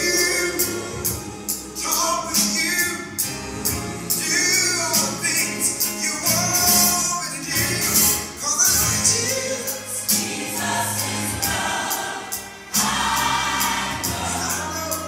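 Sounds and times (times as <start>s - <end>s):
gospel choir singing: 0.0s - 15.0s
bass line and percussion: 10.0s - 15.0s.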